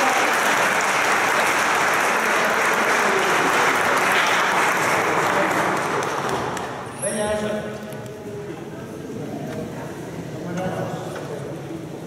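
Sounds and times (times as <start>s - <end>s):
small crowd applauding: 0.0s - 6.9s.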